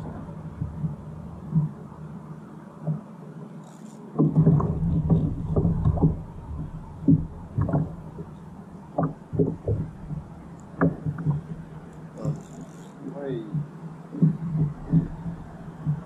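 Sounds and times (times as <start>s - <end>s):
heavy low rumble: 0.0s - 2.4s, 4.2s - 16.0s
low steady hum: 0.0s - 16.0s
knocks against plastic hull: 4.2s - 6.3s.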